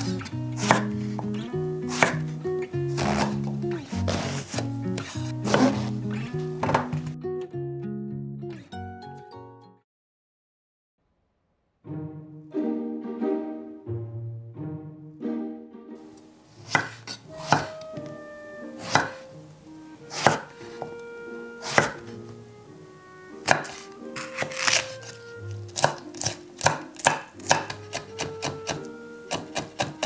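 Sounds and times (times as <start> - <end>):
knife chopping on wooden board: 0.0 - 2.3, 2.9 - 6.0, 6.6 - 7.1, 16.6 - 18.0, 18.8 - 19.3, 20.1 - 21.0, 21.6 - 22.1, 23.4 - 30.0.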